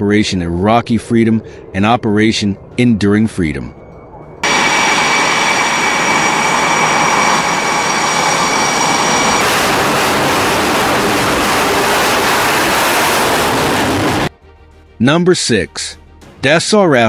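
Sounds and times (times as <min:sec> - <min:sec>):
jet engines whining: 0:00.0 - 0:14.3
jet engines afterburner hiss: 0:04.4 - 0:14.3.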